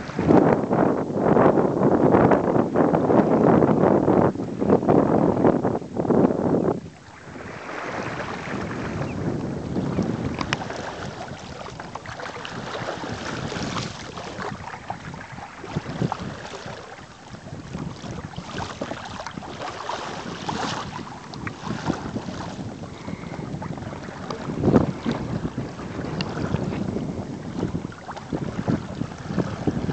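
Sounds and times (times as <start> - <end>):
wind buffeting microphone: 0.0 - 29.9
water slapping against hull: 6.9 - 29.9.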